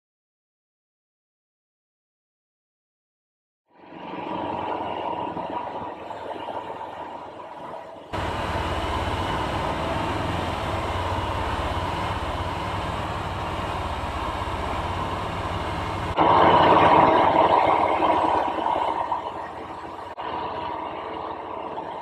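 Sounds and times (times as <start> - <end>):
rolling and wind noise: 7.8 - 20.7
low engine drone: 8.2 - 22.0.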